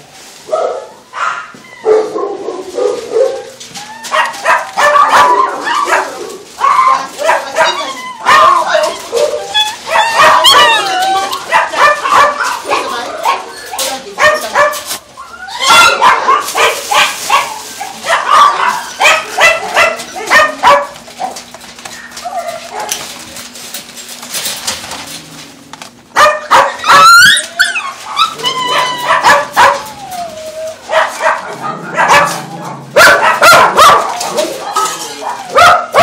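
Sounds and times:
dogs barking: 0.5s - 23.2s, 26.1s - 36.0s
dogs whining and yelping: 0.7s - 2.6s, 3.4s - 14.5s, 15.1s - 16.5s, 21.3s - 23.0s, 26.4s - 35.7s.

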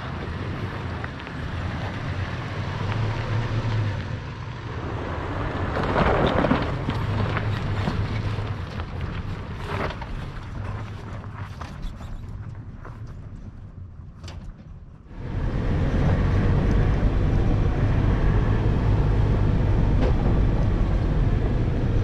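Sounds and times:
off-road vehicle engine running low: 0.0s - 22.0s
wind buffeting microphone: 15.1s - 22.0s.

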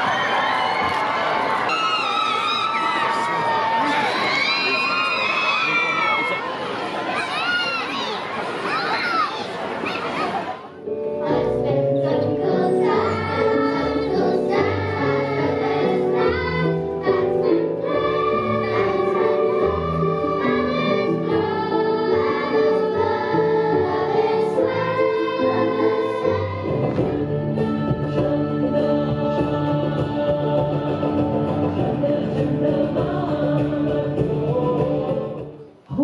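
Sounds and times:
children's choir singing: 9.5s - 35.8s.

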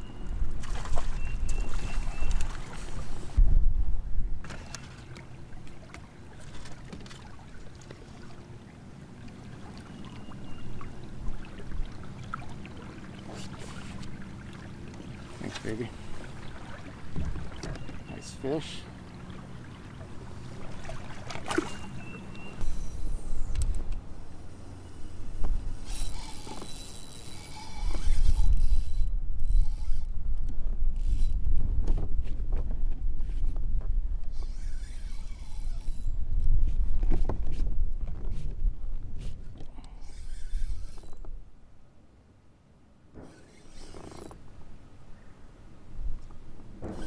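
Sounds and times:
water lapping against kayak hull: 0.1s - 3.4s, 4.4s - 36.0s
spinning reel whirring: 25.1s - 30.1s, 31.0s - 31.4s, 34.3s - 36.2s, 40.0s - 41.2s, 43.2s - 44.4s.

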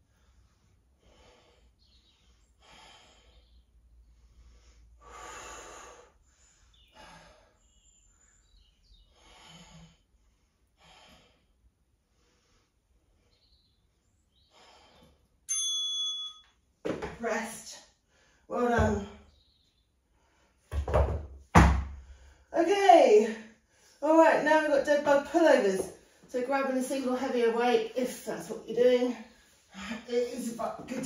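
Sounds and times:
woman breathing hard: 4.2s - 7.7s.

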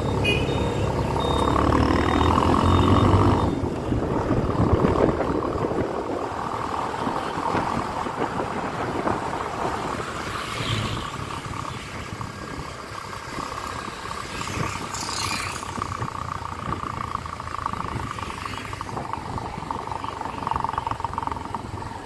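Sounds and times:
motorcycle passing by: 0.0s - 8.0s, 8.6s - 22.0s
road and wind noise: 0.0s - 22.0s
motorcycle engine running: 11.3s - 22.0s.

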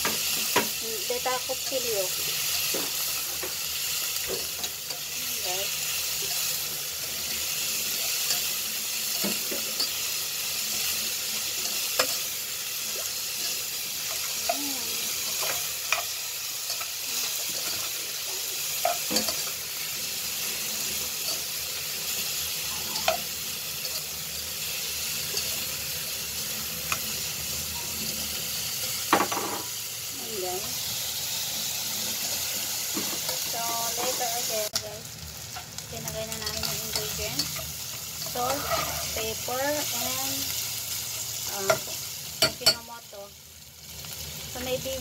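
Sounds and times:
meat sizzling in oil: 0.0s - 45.0s
metal spatula scraping pan: 38.4s - 39.2s.

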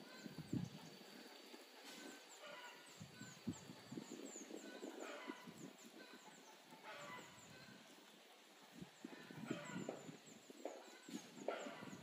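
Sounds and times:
low thumps of wind: 0.0s - 1.1s, 2.9s - 6.1s, 8.7s - 12.0s
small birds chirping: 0.0s - 12.0s.

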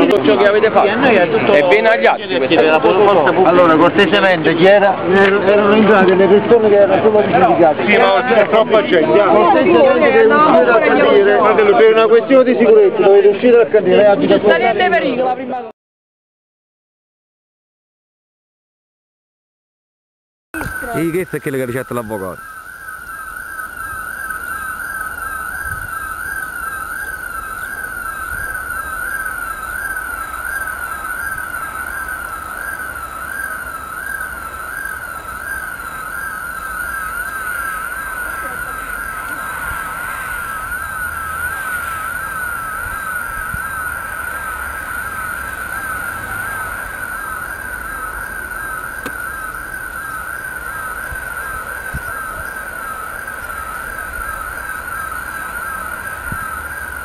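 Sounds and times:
electronic siren warbling: 20.6s - 57.0s.

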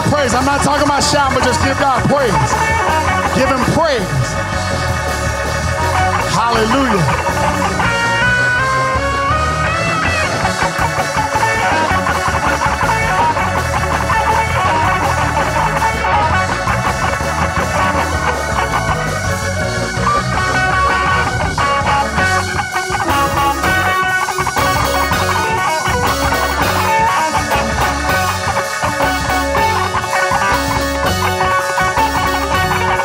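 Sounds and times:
band playing praise music: 0.0s - 33.0s
bass line: 0.0s - 33.0s
electric guitar runs: 0.0s - 33.0s.

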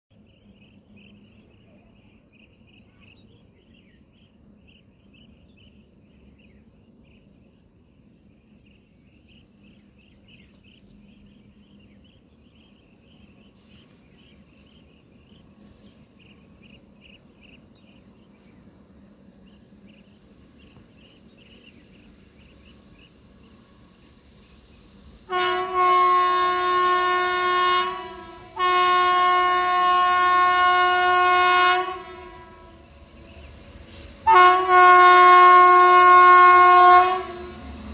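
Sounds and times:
faint chirping: 0.1s - 25.8s, 29.4s - 37.9s
train rumbling: 0.1s - 37.9s
locomotive horn blasts: 25.3s - 32.8s, 34.2s - 37.7s.

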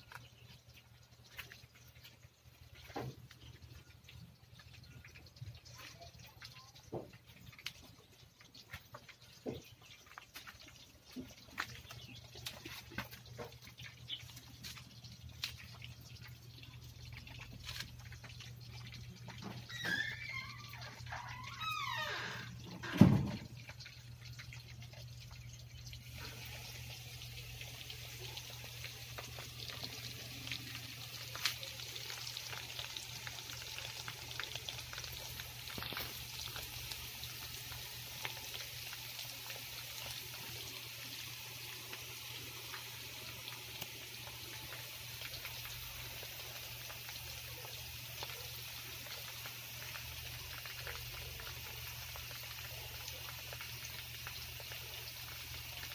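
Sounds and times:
chicken frying in hot oil: 0.0s - 55.9s
thump: 22.9s - 23.4s.

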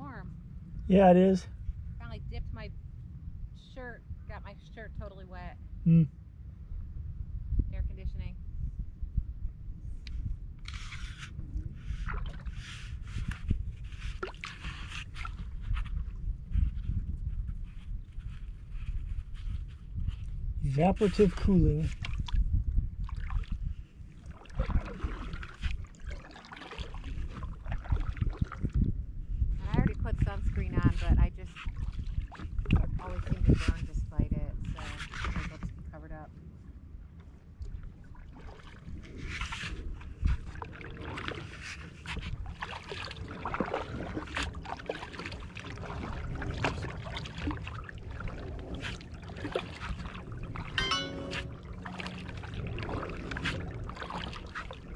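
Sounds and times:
wind rumble on microphone: 0.0s - 50.8s, 51.4s - 54.9s
paddle splashing in water: 10.7s - 16.7s, 21.9s - 22.4s, 23.0s - 28.8s, 31.5s - 33.4s, 37.6s - 54.9s.

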